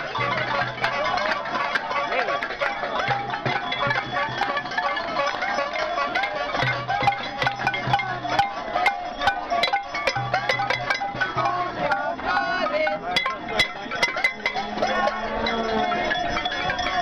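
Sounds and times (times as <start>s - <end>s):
pots and pans banging: 0.0s - 12.0s, 12.9s - 17.0s.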